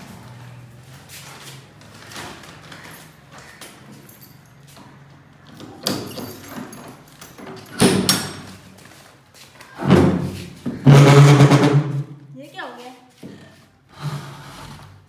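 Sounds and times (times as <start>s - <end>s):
key rattling in door lock: 5.4s - 8.5s
lock clunks: 5.5s - 8.6s.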